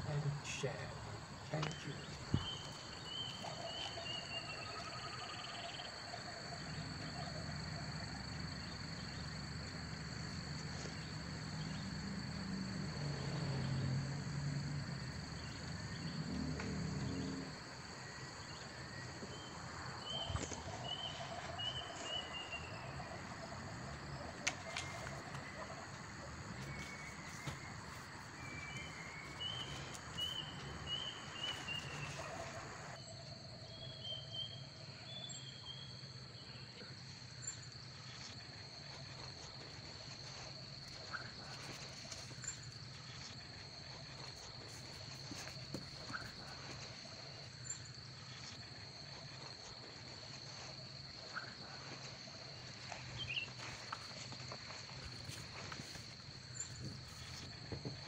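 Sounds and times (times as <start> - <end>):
crickets trilling: 0.0 - 58.0
bird-like chirps: 1.6 - 5.8, 20.1 - 23.0, 26.5 - 32.9.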